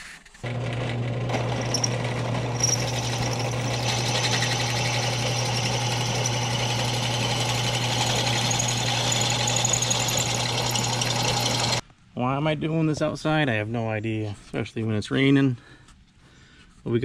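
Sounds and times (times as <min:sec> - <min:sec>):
drill press motor hum: 0:00.4 - 0:11.8
drill bit scraping metal: 0:01.3 - 0:11.8.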